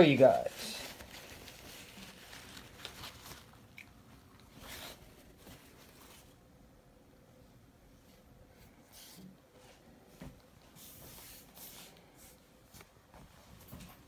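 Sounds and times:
cloth bag rustling: 0.2 - 3.7.

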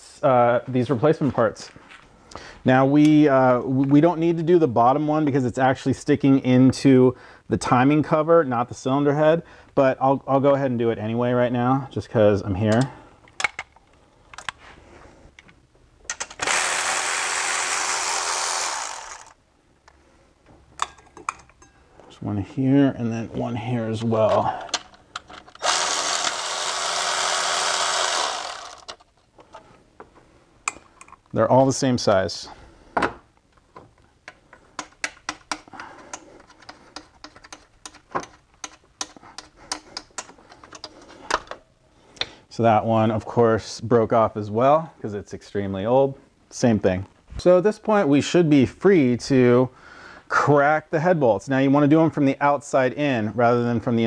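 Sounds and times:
cordless ratchet running: 16.4 - 19.4, 25.6 - 29.0.

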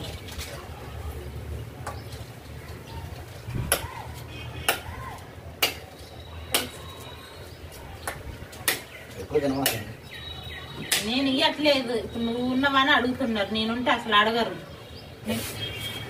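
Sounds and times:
knife chopping sugarcane: 3.6 - 4.0, 4.6 - 5.9, 6.5 - 6.9, 8.0 - 8.9, 9.5 - 10.0.

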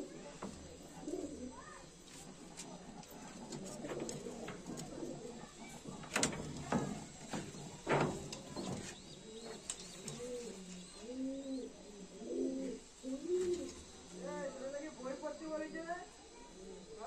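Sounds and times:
pigeons cooing: 0.0 - 15.6, 16.3 - 17.0.

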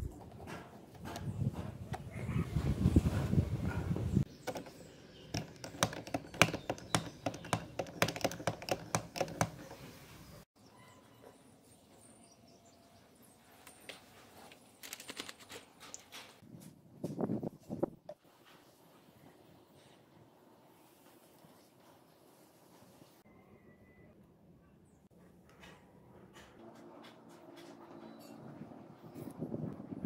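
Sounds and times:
handling noise: 4.2 - 10.4
plastic pump handle clicking: 5.3 - 9.8.

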